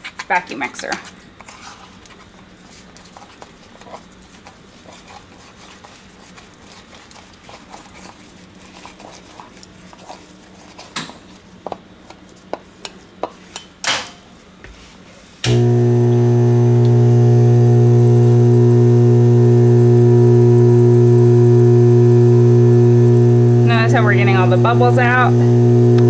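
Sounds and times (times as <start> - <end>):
spatula scraping in rubber bowl: 0.0 - 11.4, 23.0 - 26.0
vibrator machine humming: 15.4 - 26.0.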